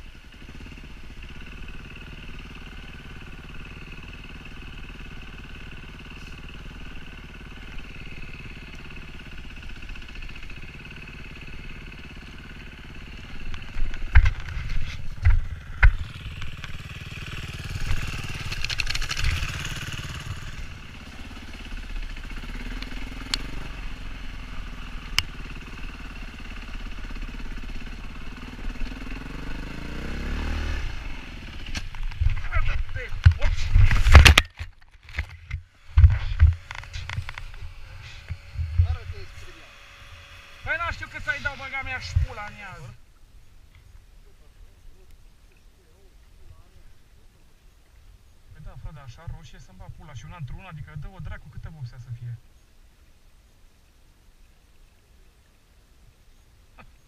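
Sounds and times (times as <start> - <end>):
dirt bike engine running: 0.0 - 43.0
wind noise: 32.0 - 39.2.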